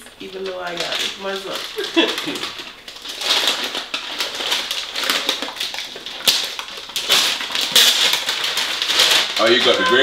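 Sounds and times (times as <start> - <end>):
wrapping paper rustling: 0.2 - 10.0
paper ripping: 1.2 - 10.0.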